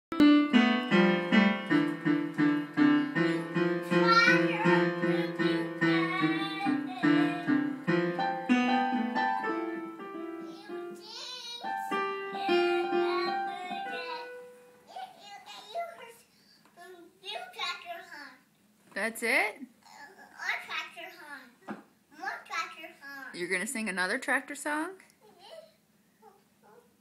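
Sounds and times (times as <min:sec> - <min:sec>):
child banging piano keys: 0:00.2 - 0:14.6
child singing: 0:03.4 - 0:07.7, 0:10.4 - 0:16.1.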